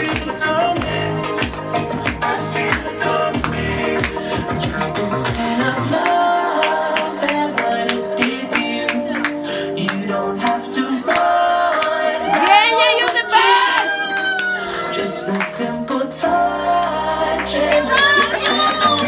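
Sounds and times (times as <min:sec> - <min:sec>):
music with steady beat: 0:00.0 - 0:12.0
person singing: 0:00.0 - 0:19.0.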